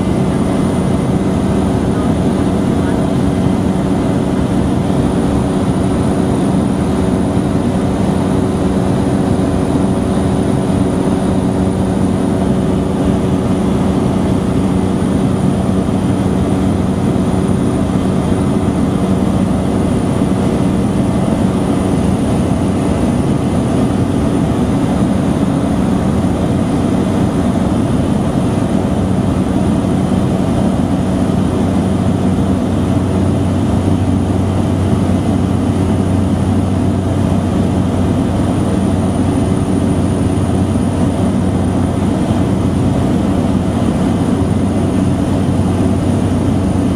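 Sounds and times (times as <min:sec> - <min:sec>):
airplane engine droning in cabin: 0:00.0 - 0:46.9.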